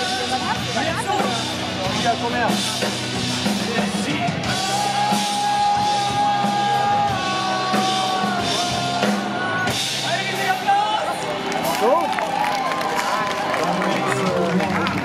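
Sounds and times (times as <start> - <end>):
drum kit: 0.0 - 12.4
bass guitar: 0.0 - 15.0
man singing long notes: 4.1 - 10.4.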